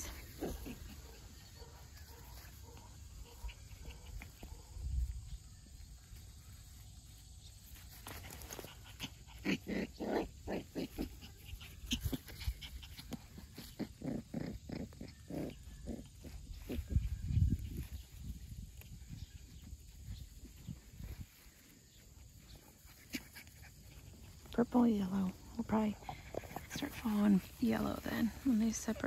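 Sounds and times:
puppies grunting and growling: 0.0 - 2.4, 8.4 - 17.3, 22.6 - 29.0.

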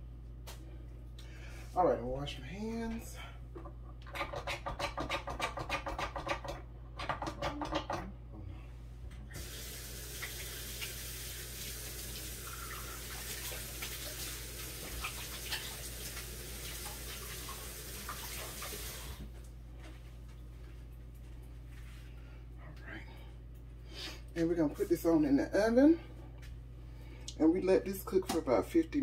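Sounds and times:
tap water running: 9.3 - 19.4.

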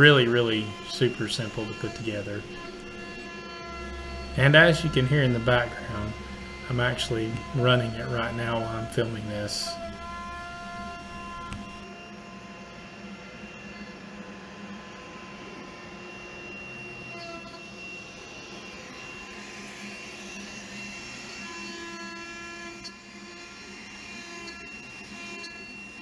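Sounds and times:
constant hum and hiss: 0.0 - 17.8
router whining tones: 0.0 - 26.0.

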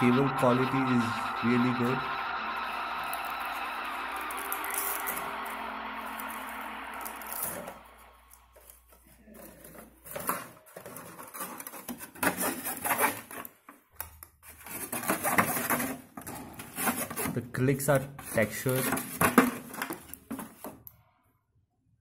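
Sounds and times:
steady noise: 0.0 - 9.1.

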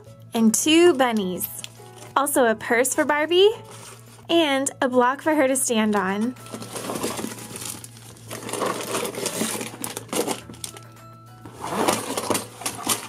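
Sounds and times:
soft background music: 0.0 - 13.0
cardboard and plastic bags rustling: 0.6 - 2.3, 2.9 - 4.3, 5.8 - 13.0.

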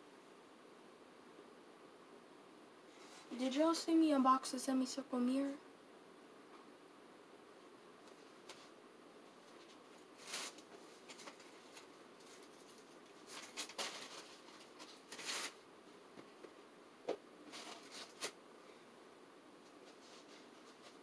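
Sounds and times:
rummaging through cardboard boxes: 9.5 - 15.6.

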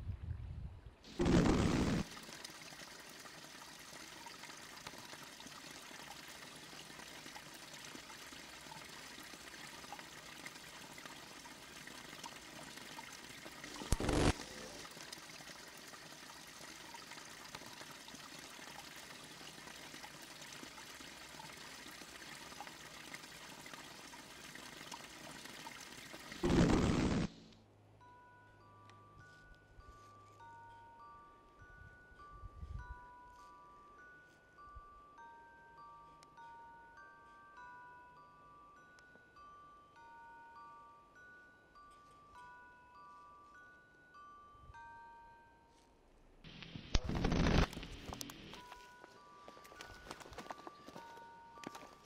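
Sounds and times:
brook trickling: 1.1 - 26.5, 47.7 - 52.0.

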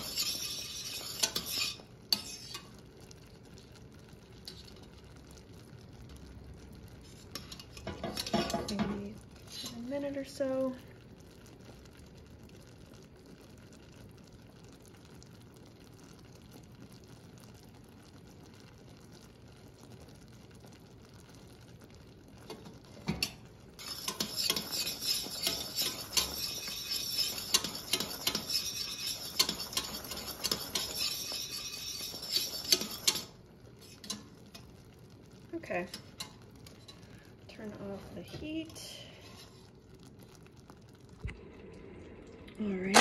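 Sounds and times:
utensil scraping a pot: 0.0 - 2.8, 7.0 - 10.1, 22.5 - 34.7, 35.6 - 39.9
caramel bubbling in a pot: 0.0 - 43.0.

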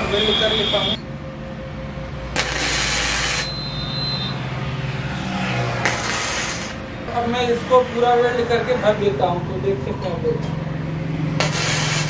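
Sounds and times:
road traffic: 0.0 - 12.0
vehicle droning past: 1.0 - 12.0
welding arc hissing: 2.4 - 3.6, 5.8 - 6.9, 11.4 - 12.0.

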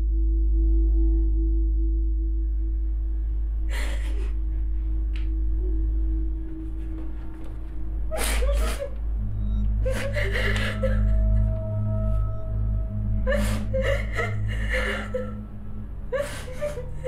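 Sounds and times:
low musical drone: 0.0 - 17.0
woman crying and sobbing: 3.6 - 4.8, 8.1 - 17.0.

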